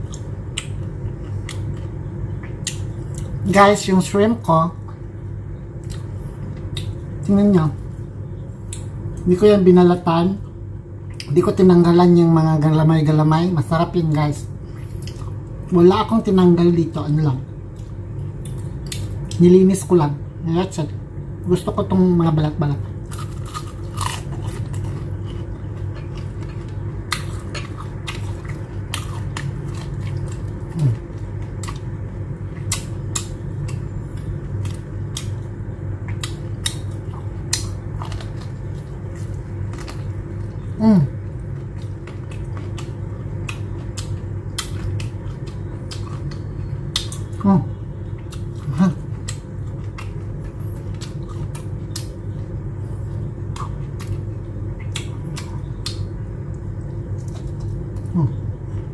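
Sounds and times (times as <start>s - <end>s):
crunchy chewing: 0.0s - 3.6s, 4.8s - 9.4s, 13.7s - 16.4s, 22.6s - 58.9s
steady low hum: 0.0s - 58.9s.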